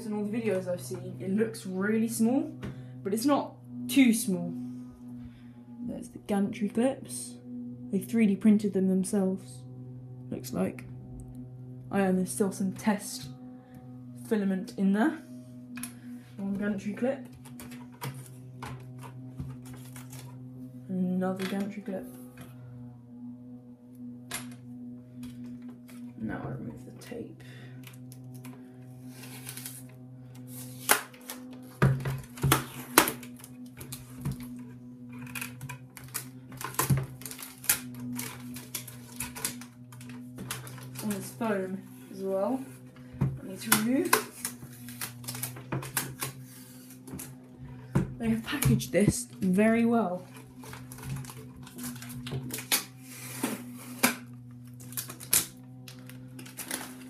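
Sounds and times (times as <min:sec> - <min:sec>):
low hum: 0:00.0 - 0:57.0
lawnmower hum: 0:17.3 - 0:20.9
packing tape ripping: 0:29.1 - 0:29.9, 0:30.5 - 0:34.4, 0:35.1 - 0:41.1, 0:44.0 - 0:47.3, 0:50.3 - 0:57.0.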